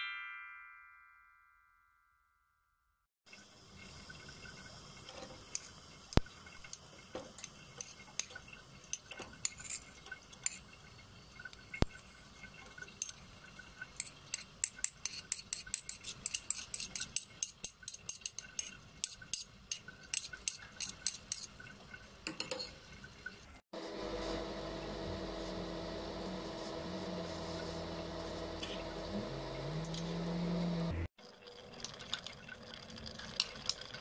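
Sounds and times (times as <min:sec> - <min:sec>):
utensils clinking against dishes: 0:14.0 - 0:21.5.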